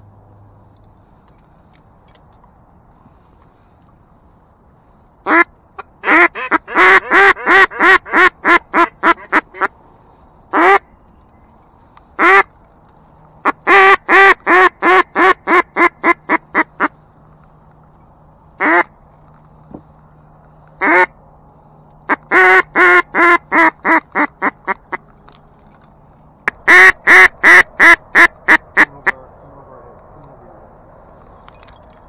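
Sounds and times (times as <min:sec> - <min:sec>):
duck call quacks: 0:05.3 - 0:09.7, 0:10.5 - 0:10.8, 0:12.2 - 0:12.5, 0:13.4 - 0:16.9, 0:18.6 - 0:18.9, 0:20.8 - 0:21.1, 0:22.1 - 0:25.0, 0:26.4 - 0:29.2.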